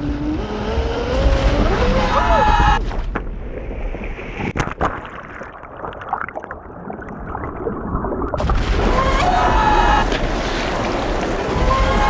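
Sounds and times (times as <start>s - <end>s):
underwater churning water: 2.8s - 12.0s
bubbling clicks and pops: 3.1s - 8.7s.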